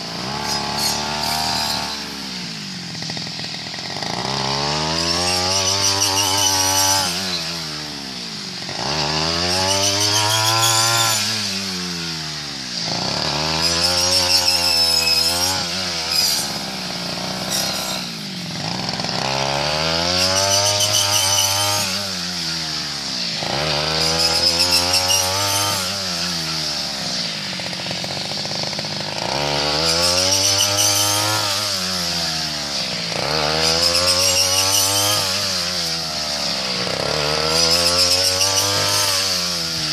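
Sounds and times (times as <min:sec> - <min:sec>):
small engine revving: 0:00.0 - 0:39.9.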